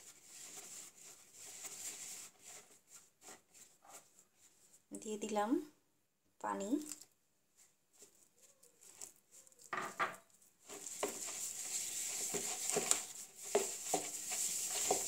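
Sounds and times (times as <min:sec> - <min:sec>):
wet dough squishing: 0:06.8 - 0:09.7, 0:10.4 - 0:15.0
fingers clicking and scraping bowl: 0:10.6 - 0:15.0.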